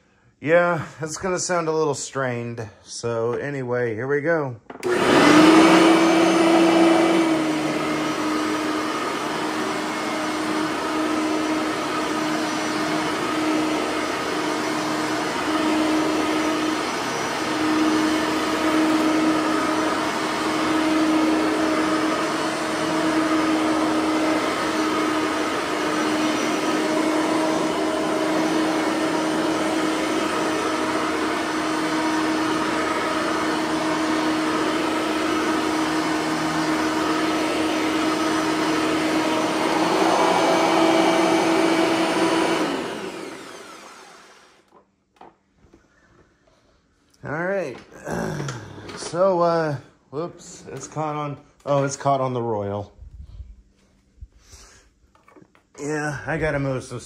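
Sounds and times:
vacuum cleaner running: 0:04.7 - 0:45.3, 0:47.3 - 0:52.4
vacuum motor winding down: 0:04.8 - 0:44.8, 0:48.0 - 0:49.6.

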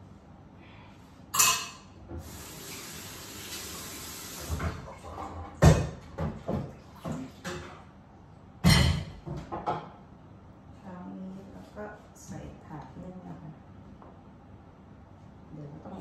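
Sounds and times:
dishes clattering in sink: 0:01.3 - 0:02.3, 0:04.4 - 0:07.9, 0:08.6 - 0:10.0
tap running into sink: 0:02.1 - 0:05.0.

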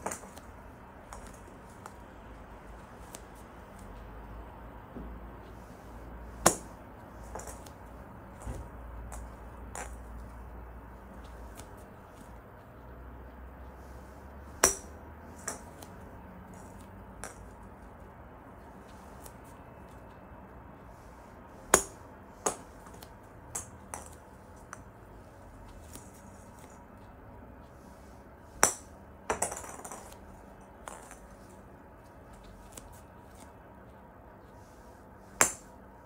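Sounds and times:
golf club striking plastic ball: 0:14.5 - 0:15.8, 0:35.4 - 0:35.7.

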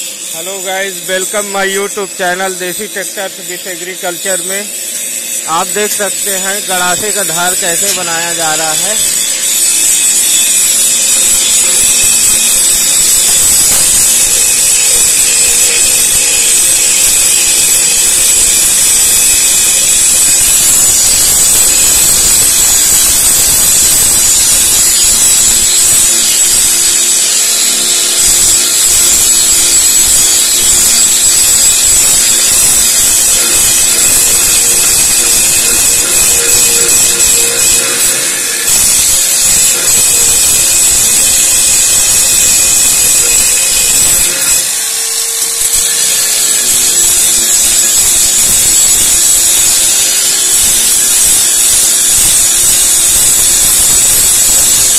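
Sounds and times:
angle grinder grinding steel: 0:00.0 - 0:54.9.

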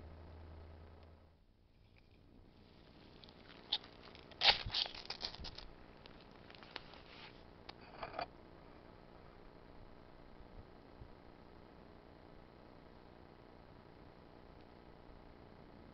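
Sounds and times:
fire striker scraping rod: 0:06.5 - 0:08.3.

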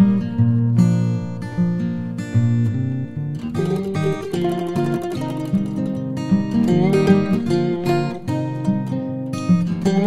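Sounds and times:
acoustic guitar melody: 0:00.0 - 0:10.0.

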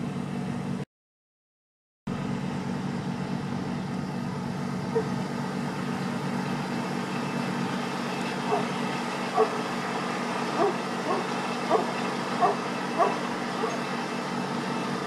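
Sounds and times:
engine humming: 0:02.1 - 0:15.0.

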